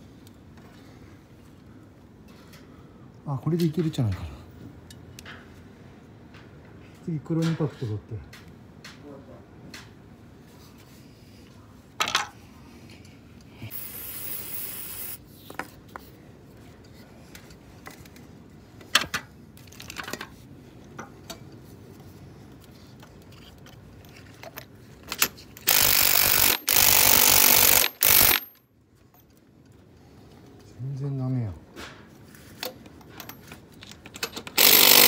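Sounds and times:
clicks and knocks of handling tools: 0:04.9 - 0:05.5, 0:17.3 - 0:21.5, 0:22.5 - 0:25.7, 0:31.8 - 0:35.0
impact driver running: 0:13.7 - 0:15.2, 0:25.6 - 0:28.5, 0:34.4 - 0:35.0.

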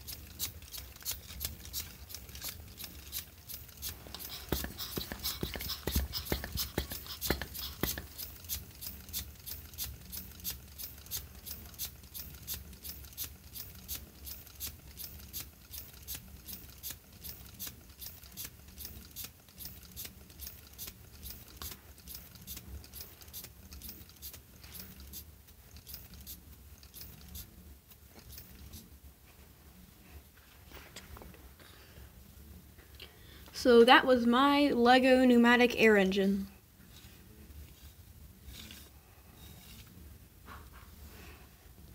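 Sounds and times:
air engine puffing and clicking: 0:00.0 - 0:18.2.

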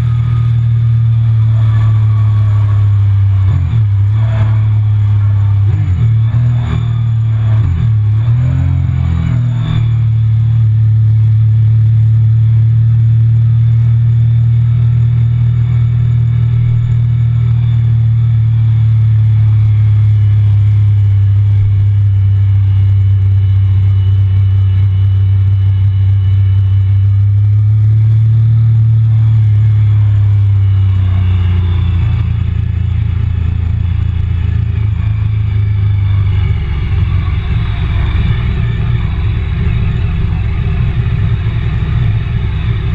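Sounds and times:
motorcycle engine running: 0:00.0 - 0:42.9.

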